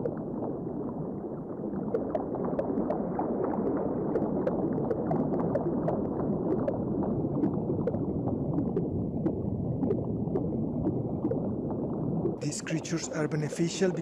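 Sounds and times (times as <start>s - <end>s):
low water gurgling: 0.0s - 14.0s
bubble pops: 1.8s - 11.6s.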